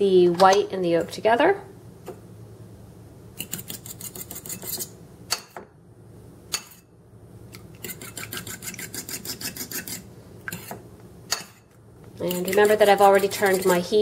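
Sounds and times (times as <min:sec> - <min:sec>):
fork beating eggs in a bowl: 0:03.4 - 0:05.6, 0:07.6 - 0:11.6, 0:12.2 - 0:14.0.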